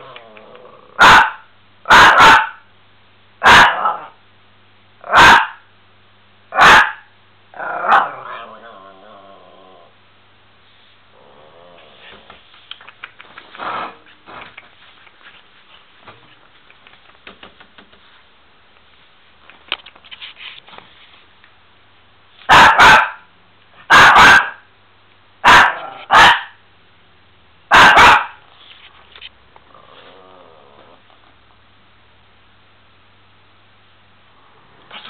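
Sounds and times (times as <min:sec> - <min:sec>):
dog barking: 0:01.0 - 0:02.6, 0:03.4 - 0:04.2, 0:05.0 - 0:05.7, 0:06.5 - 0:07.1, 0:07.9 - 0:08.3, 0:22.5 - 0:23.3, 0:23.9 - 0:24.7, 0:25.4 - 0:26.6, 0:27.7 - 0:28.4
faint clicks and scuffles: 0:11.9 - 0:21.6, 0:28.5 - 0:29.4.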